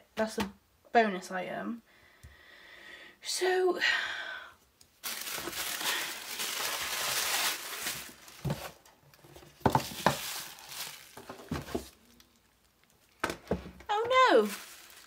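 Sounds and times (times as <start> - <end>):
tissue paper rustling and crumpling: 5.0 - 8.8, 9.5 - 12.4, 14.2 - 15.0.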